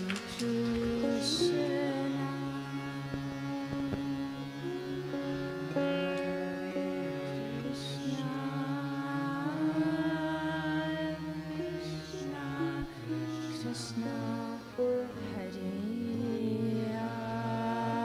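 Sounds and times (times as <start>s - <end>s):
harmonium: 0.0s - 18.0s
melodic chanting: 0.0s - 18.0s.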